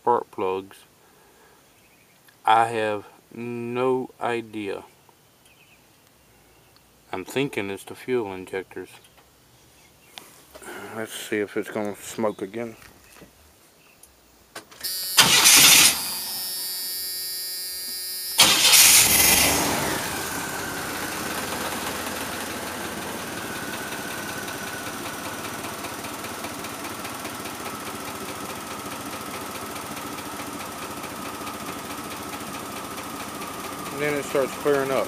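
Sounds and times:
engine starting bursts: 14.8 - 16.9, 18.2 - 28.7, 29.8 - 35.0
engine idling with whine: 14.8 - 35.0.

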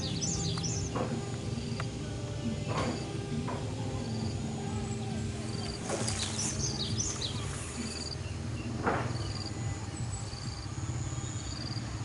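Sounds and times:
insects chirping: 0.0 - 12.0
steady low hum: 0.0 - 12.0
brief bump: 8.8 - 9.3.

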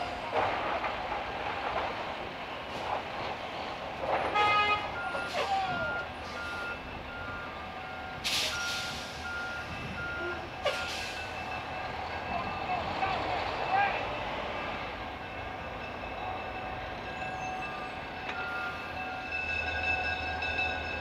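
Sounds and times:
trucks passing over rail crossing: 0.0 - 21.0
hiss of air: 8.2 - 9.3.

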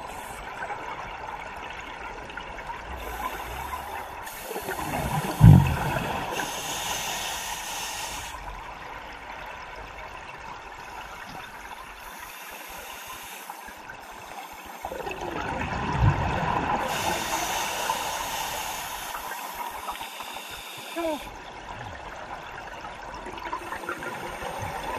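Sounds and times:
exhaled bubbles rushing: 2.8 - 6.4, 14.8 - 17.1
regulator hiss: 3.0 - 8.4, 11.0 - 15.1, 16.8 - 21.3.

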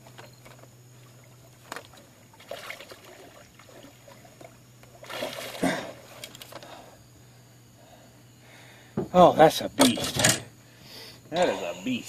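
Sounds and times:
water splashing and sloshing: 0.0 - 6.7.

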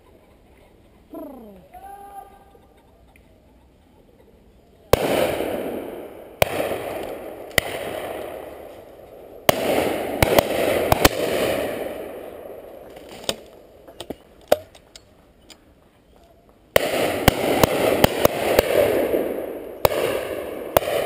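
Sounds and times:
shotgun shots with echo: 5.0 - 8.7, 9.4 - 12.7, 16.8 - 21.0.

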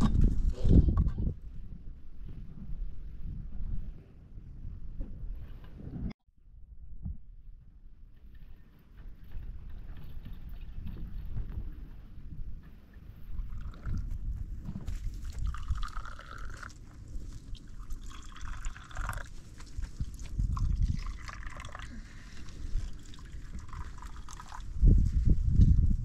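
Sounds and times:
water pouring and sloshing: 13.3 - 25.1.

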